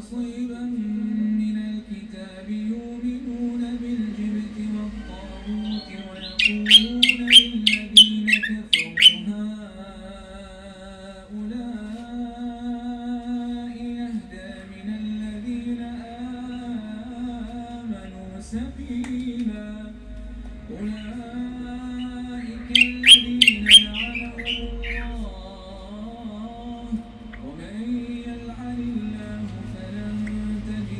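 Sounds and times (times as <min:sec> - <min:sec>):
man chanting: 0:00.0 - 0:20.0, 0:20.7 - 0:30.9
songbird whistled notes and calls: 0:05.5 - 0:09.3, 0:21.9 - 0:25.2.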